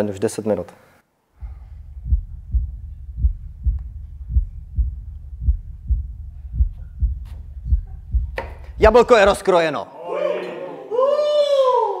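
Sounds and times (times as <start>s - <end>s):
low steady hum: 1.3s - 9.5s
heartbeat thumps: 1.4s - 9.5s.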